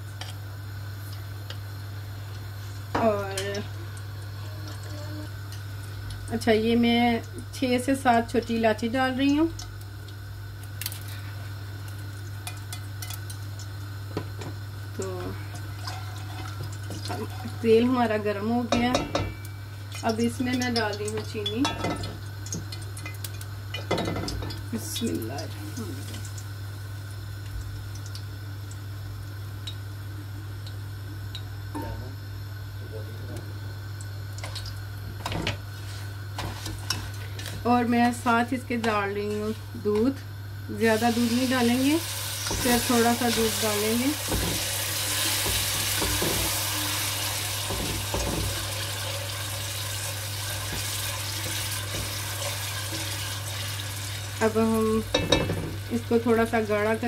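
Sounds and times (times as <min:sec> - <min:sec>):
milk sizzling in hot pan: 0:00.0 - 0:32.5, 0:33.6 - 0:57.0.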